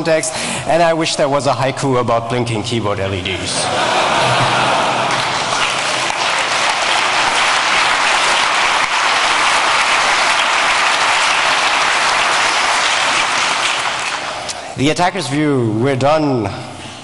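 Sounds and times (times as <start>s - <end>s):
large audience applauding: 3.9s - 14.5s.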